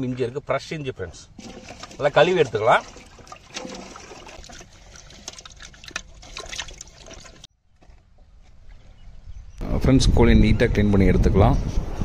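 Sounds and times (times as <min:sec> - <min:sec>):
water splashing and trickling: 0:01.3 - 0:07.5.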